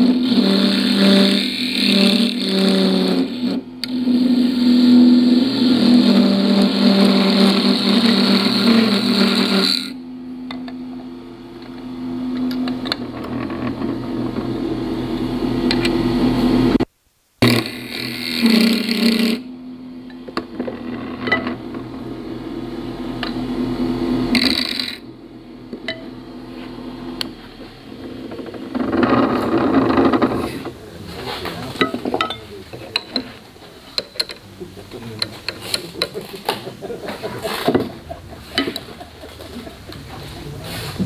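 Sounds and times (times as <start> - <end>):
turning tool cutting wood: 0.0 - 10.0, 12.4 - 16.8, 17.4 - 19.5, 23.1 - 25.9, 27.1 - 34.4, 35.1 - 40.2
wood lathe motor hum: 0.0 - 16.8, 17.4 - 19.5, 20.2 - 32.2, 35.0 - 40.3.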